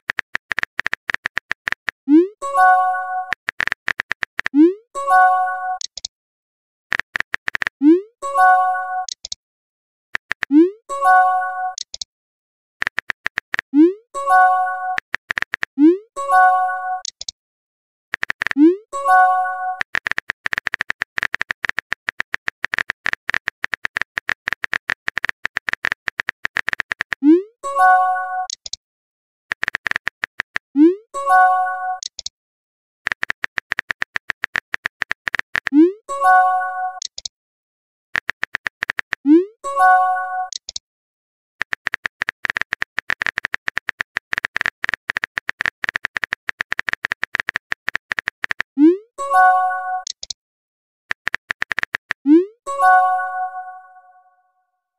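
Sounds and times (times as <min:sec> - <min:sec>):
phone keyboard typing clicks: 0:00.0 - 0:02.0, 0:03.2 - 0:04.8, 0:05.8 - 0:06.1, 0:06.9 - 0:07.8, 0:09.0 - 0:09.4, 0:10.2 - 0:10.7, 0:11.7 - 0:12.1, 0:12.8 - 0:13.9, 0:14.9 - 0:15.8, 0:17.0 - 0:17.4, 0:18.1 - 0:27.4, 0:28.4 - 0:28.8, 0:29.5 - 0:30.7, 0:32.0 - 0:32.3, 0:33.1 - 0:35.9, 0:37.0 - 0:37.3, 0:38.2 - 0:39.4, 0:40.4 - 0:40.8, 0:41.6 - 0:48.8, 0:50.0 - 0:50.4, 0:51.1 - 0:52.3
keyboard tap clicks: 0:51.1 - 0:52.2.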